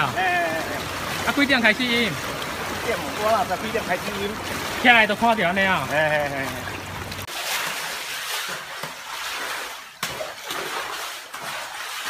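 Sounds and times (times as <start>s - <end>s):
floodwater sloshing and splashing: 0.0s - 12.0s
broom sweeping water on tiles: 7.2s - 12.0s.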